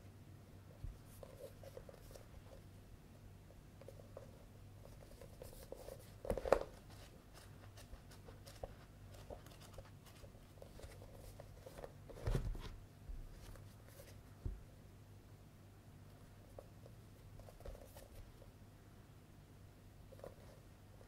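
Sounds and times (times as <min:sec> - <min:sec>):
book pages flipping: 0:05.0 - 0:14.2
paper rustling: 0:05.0 - 0:14.2.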